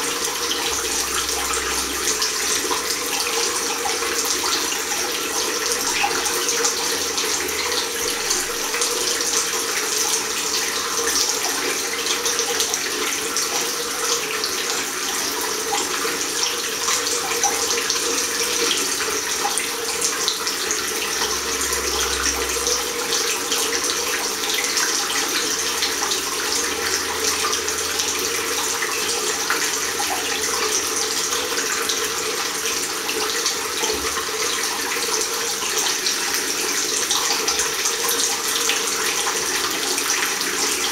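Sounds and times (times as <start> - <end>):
tap water running into basin: 0.0 - 40.9.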